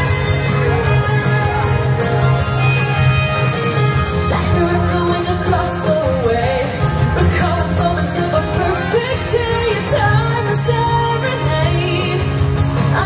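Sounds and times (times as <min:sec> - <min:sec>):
pop song with singing voice: 0:00.0 - 0:13.0.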